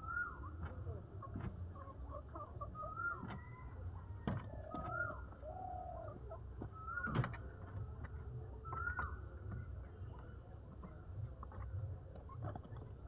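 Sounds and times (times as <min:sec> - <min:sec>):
pigeons cooing: 0:04.5 - 0:07.3.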